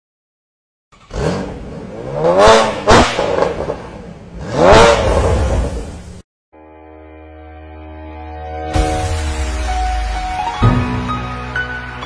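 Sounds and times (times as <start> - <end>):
car engine revving: 1.0 - 6.2.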